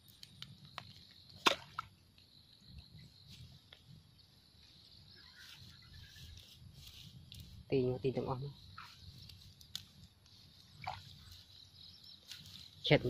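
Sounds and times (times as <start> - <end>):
sharp snap: 1.4 - 1.8.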